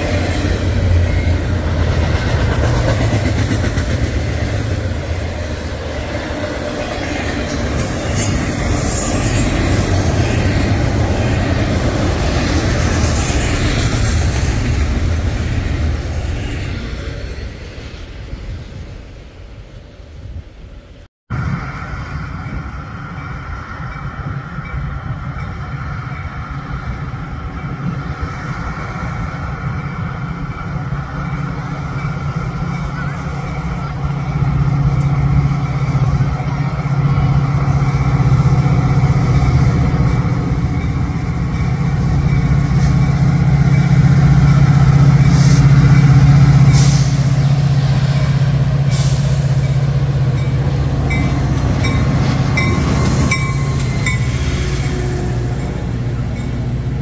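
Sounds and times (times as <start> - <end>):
diesel locomotive engine drone: 0.0 - 57.0
short air hisses: 46.7 - 47.4, 48.9 - 49.6.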